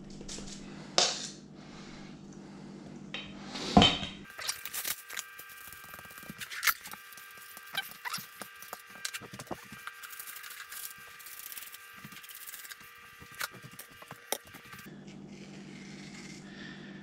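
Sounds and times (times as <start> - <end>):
faint steady hum: 0.0 - 17.0
waxed paper crinkling: 4.4 - 14.9.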